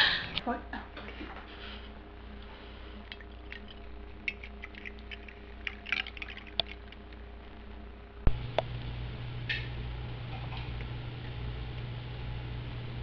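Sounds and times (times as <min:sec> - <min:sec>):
low hum: 0:01.2 - 0:13.0
tea pouring into cup: 0:03.1 - 0:07.0.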